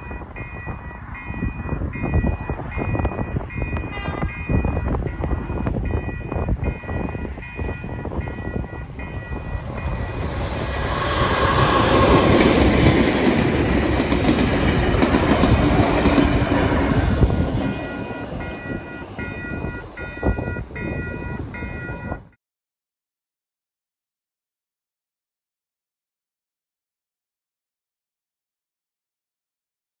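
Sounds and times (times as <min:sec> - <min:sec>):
electronic level crossing bell: 0:00.0 - 0:10.2, 0:17.6 - 0:22.4
diesel locomotive passing: 0:00.0 - 0:22.4
train wheels clickety-clack: 0:02.2 - 0:22.0.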